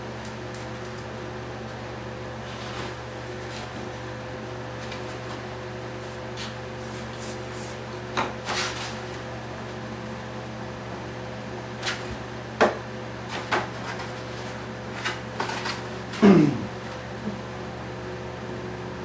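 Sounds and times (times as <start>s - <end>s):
steady hum: 0.0s - 19.0s
foam board knocks and scrapes: 11.8s - 15.9s.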